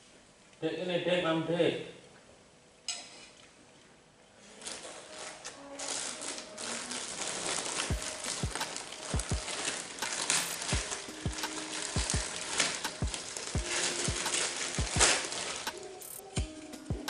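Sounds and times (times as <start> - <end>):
plastic bag crinkling: 4.4 - 16.7.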